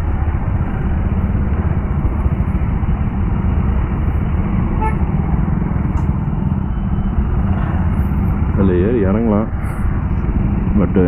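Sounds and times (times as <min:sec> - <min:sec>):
motorcycle engine running: 0:00.0 - 0:11.0
wind rush: 0:00.0 - 0:11.0
motorcycle horn toot: 0:04.8 - 0:05.1.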